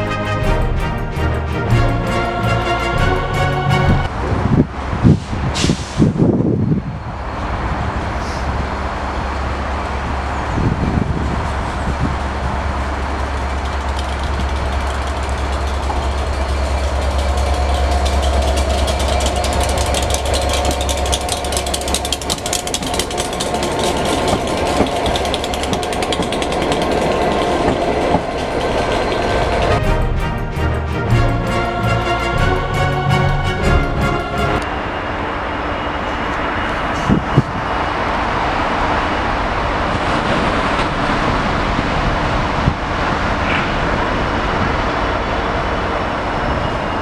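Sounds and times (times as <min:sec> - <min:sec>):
diesel locomotives rumbling: 0:00.0 - 0:47.0.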